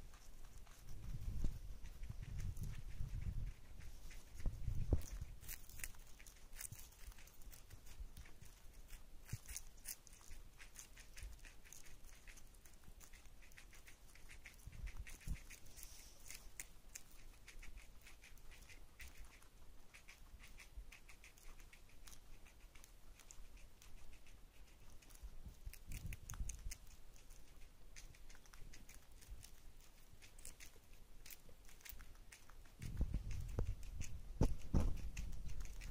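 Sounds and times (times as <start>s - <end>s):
animals crunching lettuce: 0.0s - 35.9s
soft low bumps: 32.8s - 35.9s.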